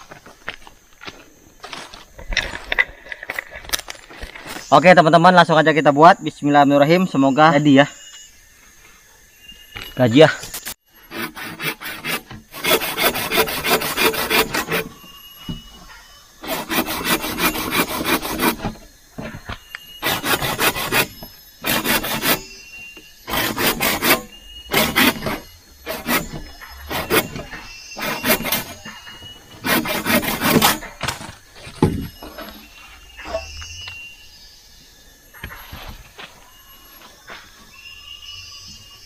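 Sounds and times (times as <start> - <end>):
hand saw cutting wood: 11.0 - 15.0, 16.4 - 18.9, 20.0 - 22.5, 23.2 - 28.9, 29.5 - 31.2.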